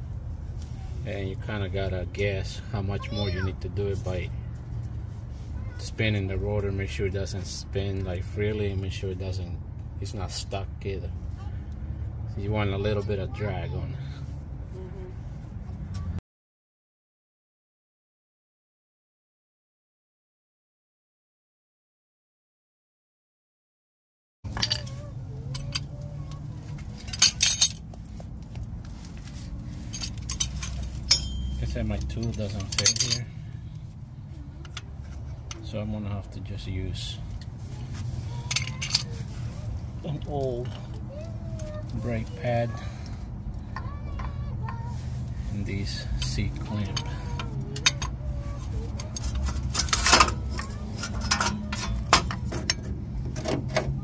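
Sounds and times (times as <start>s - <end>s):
metal tools clicking and clanking: 24.5s - 28.4s, 29.1s - 33.6s, 38.1s - 39.5s, 45.8s - 54.0s
metal brake parts clinking: 24.5s - 33.6s, 37.3s - 39.5s, 45.8s - 53.9s.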